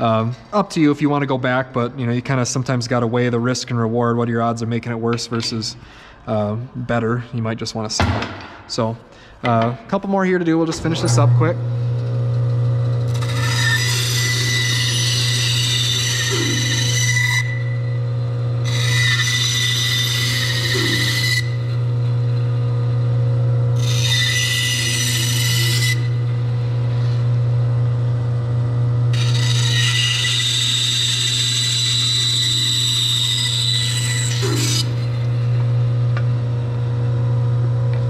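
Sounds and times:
bandsaw motor hum: 0:10.6 - 0:38.0
bandsaw blade cutting wood: 0:13.1 - 0:18.0, 0:18.6 - 0:22.6, 0:23.8 - 0:27.3, 0:29.1 - 0:36.3.

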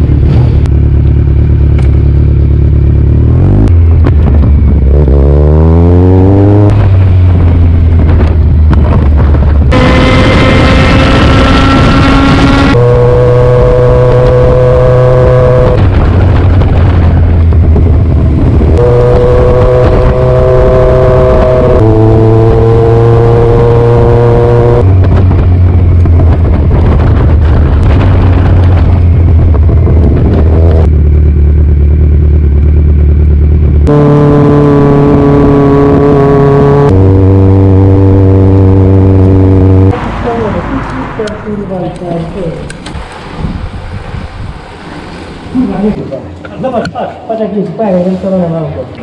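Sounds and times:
sustained chords over bass note: 0:09.7 - 0:15.9, 0:17.4 - 0:25.0, 0:33.8 - 0:42.1.

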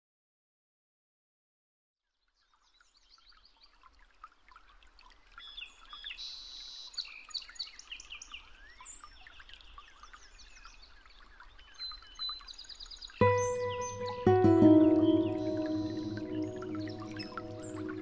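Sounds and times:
songbirds chirping and trilling: 0:13.2 - 0:18.0.

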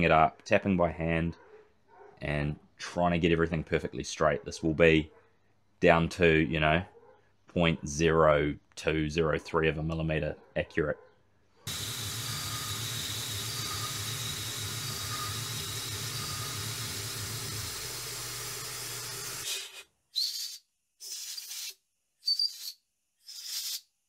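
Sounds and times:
mill spindle cutting threads: 0:11.7 - 0:19.5
hiss of coolant mist: 0:11.7 - 0:19.8.

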